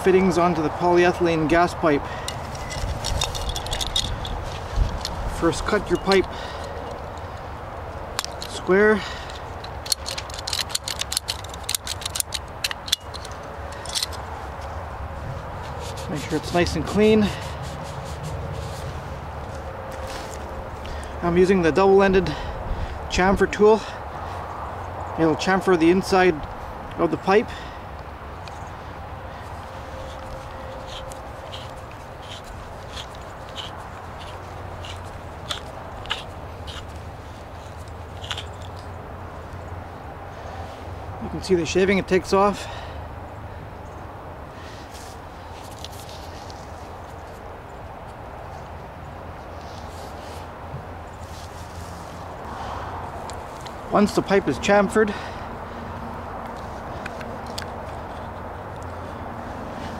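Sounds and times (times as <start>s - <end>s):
blade scraping plastic pipe: 30.0s - 36.9s.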